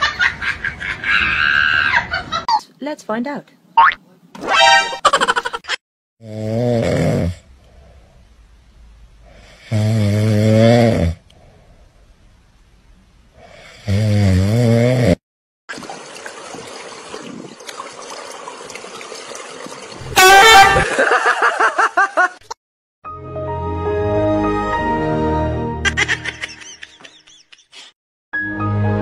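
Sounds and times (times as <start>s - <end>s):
cat snoring: 9.3s - 11.2s.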